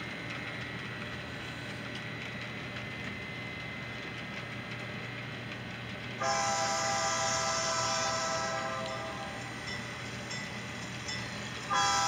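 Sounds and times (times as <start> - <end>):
model train running on track: 0.0 - 12.0.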